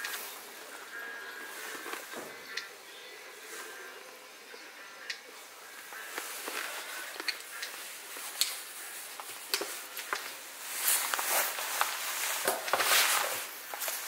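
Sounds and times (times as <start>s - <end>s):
helmet liner rustling: 6.0s - 14.0s.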